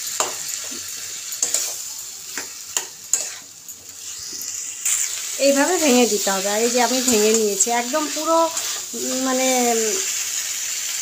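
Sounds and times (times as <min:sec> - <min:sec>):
potatoes sizzling in oil: 0:00.0 - 0:11.0
metal spatula scraping pan: 0:02.4 - 0:05.4, 0:06.9 - 0:09.1.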